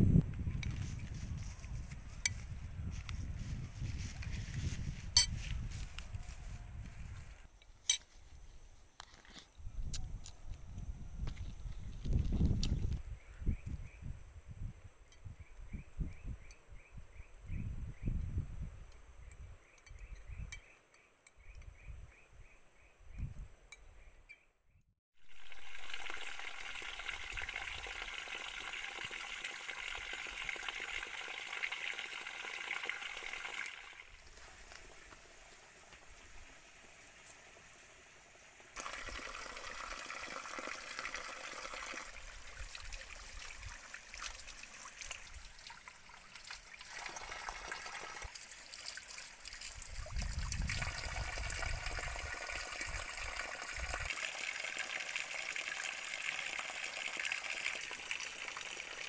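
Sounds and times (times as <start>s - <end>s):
water trickling onto rocks: 25.3s - 37.8s, 38.6s - 59.0s.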